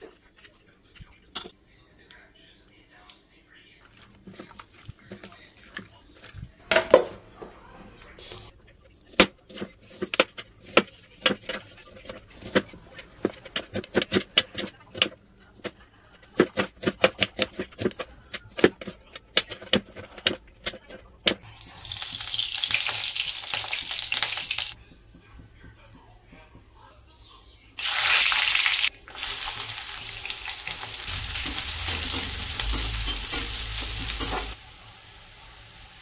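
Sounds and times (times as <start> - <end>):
oil hissing in a pan: 27.8 - 36.0.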